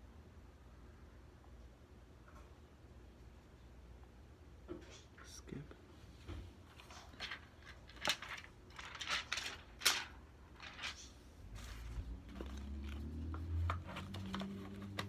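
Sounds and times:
handling rustles: 0:06.2 - 0:15.0.

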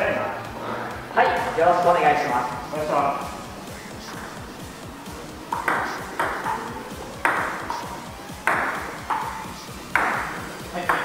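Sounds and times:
table tennis ball pinging: 0:05.3 - 0:11.0.

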